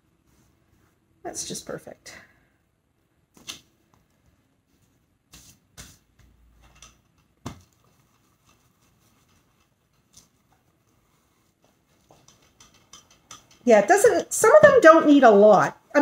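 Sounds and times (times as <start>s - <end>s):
cloth shuffling: 3.4s - 6.8s, 7.4s - 12.3s.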